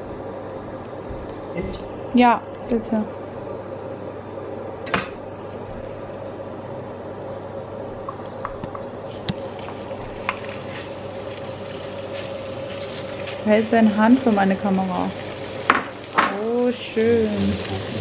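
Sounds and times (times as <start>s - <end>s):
faint steady hum: 0.0s - 18.0s
butter sizzling in frying pan: 8.8s - 18.0s.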